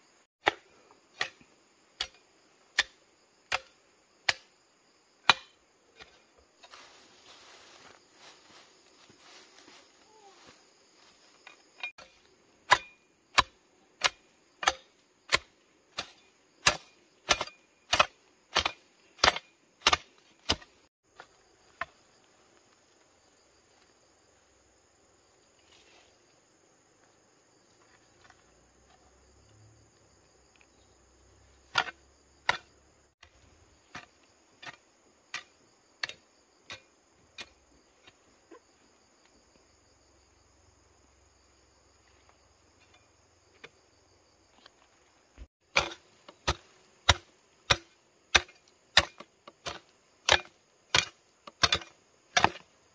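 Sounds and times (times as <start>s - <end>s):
insects buzzing: 0.0s - 52.9s
hoe chopping into dry soil: 0.4s - 4.5s, 5.2s - 6.8s, 11.4s - 22.0s, 31.6s - 38.2s, 45.6s - 52.8s.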